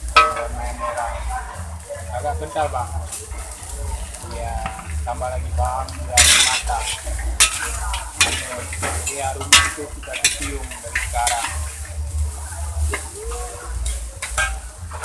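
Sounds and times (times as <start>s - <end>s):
food sizzling: 0.0s - 15.0s
metal ladle scraping a wok: 6.2s - 11.9s, 12.8s - 15.0s.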